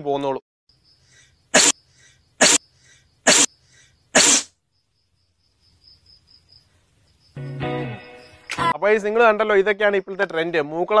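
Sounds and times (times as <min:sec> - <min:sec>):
faint breath puffs: 0:01.0 - 0:04.5
forceful breath blasts: 0:01.6 - 0:04.5.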